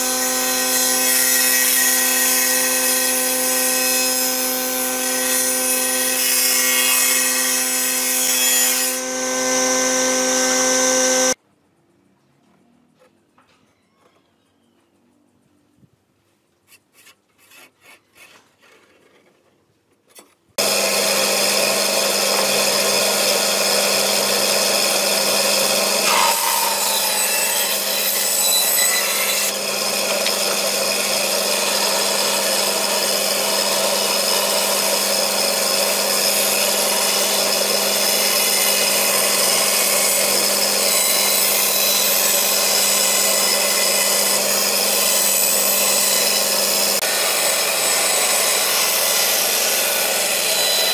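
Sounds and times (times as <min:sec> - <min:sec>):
bandsaw cutting wood: 0:00.0 - 0:11.4, 0:20.6 - 0:50.9
pencil strokes: 0:16.7 - 0:19.2.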